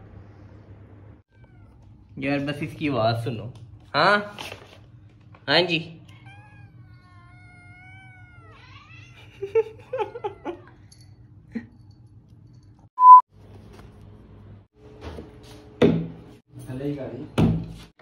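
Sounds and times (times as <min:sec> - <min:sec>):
cat yowling: 0:01.3 - 0:01.9, 0:06.0 - 0:10.9
short loud beep: 0:13.0 - 0:13.2.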